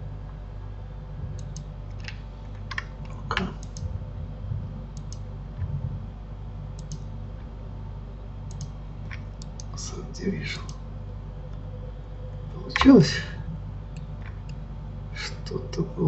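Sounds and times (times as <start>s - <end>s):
steady low hum: 0.0s - 16.0s
keyboard and mouse clicks: 1.4s - 3.9s, 5.0s - 5.2s, 6.8s - 7.1s, 8.5s - 9.7s.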